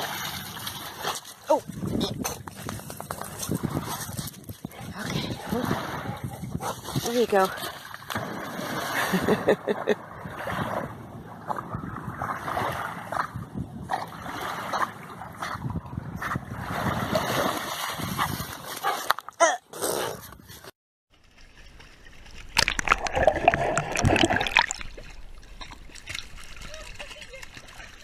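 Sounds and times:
dog splashing through water: 0.0 - 4.4, 5.5 - 9.4, 16.6 - 19.1
water churning and slapping: 0.0 - 19.1, 21.2 - 28.0.

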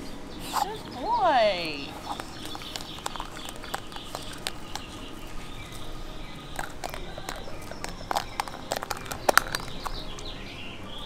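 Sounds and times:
faint outdoor background: 0.0 - 11.0
plastic egg clicking and tapping: 2.0 - 5.0, 6.6 - 10.3.

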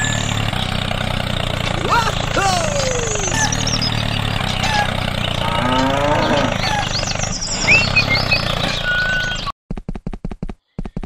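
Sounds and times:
birds chirping: 0.0 - 9.5
low engine hum: 0.0 - 9.5
cow mooing: 4.7 - 6.9.

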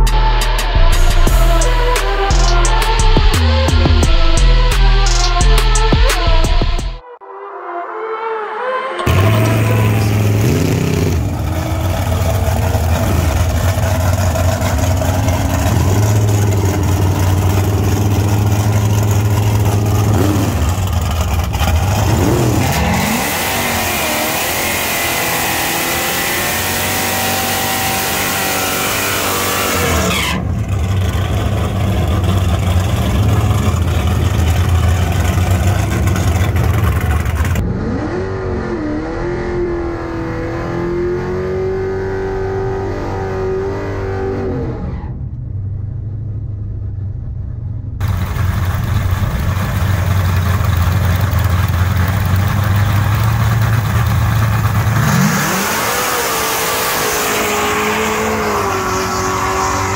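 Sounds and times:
vee eight engine revving: 9.0 - 45.0, 48.0 - 59.9.

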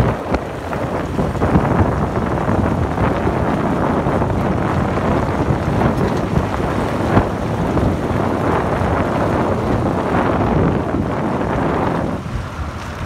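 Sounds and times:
tyres rolling on road: 0.0 - 13.0
wind buffeting microphone: 0.0 - 13.0.

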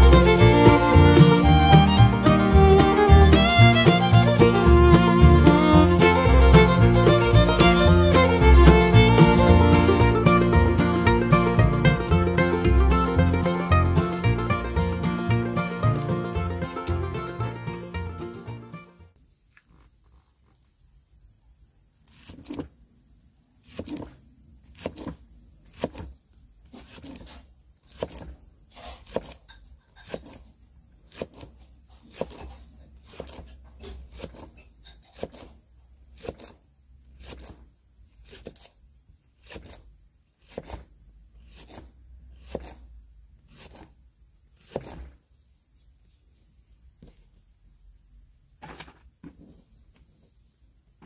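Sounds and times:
knife slicing onion: 22.0 - 22.8, 23.6 - 45.2.

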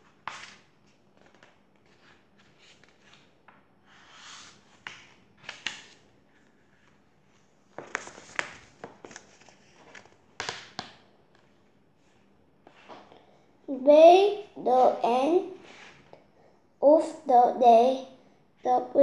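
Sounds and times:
book pages rustling: 0.0 - 13.1.

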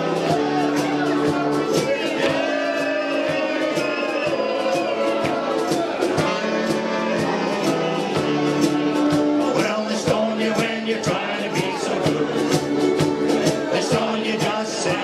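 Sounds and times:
saxophones and brass playing: 0.0 - 15.0
ukuleles strumming: 0.0 - 15.0
voices singing: 0.0 - 15.0.

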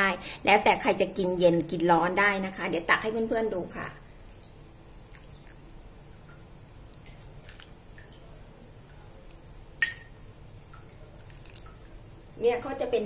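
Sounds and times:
liquid splashing and dripping: 4.2 - 9.4, 10.6 - 12.2
ladle pouring liquid into bowl: 6.9 - 8.4, 10.8 - 12.0
sharp metal clink: 9.8 - 10.2.

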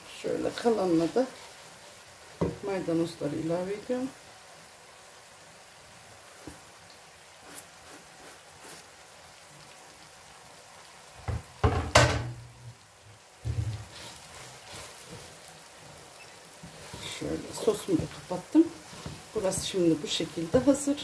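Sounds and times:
loud knocks and clatter: 11.3 - 12.4
stirring spaghetti in a metal pot: 13.8 - 21.0.

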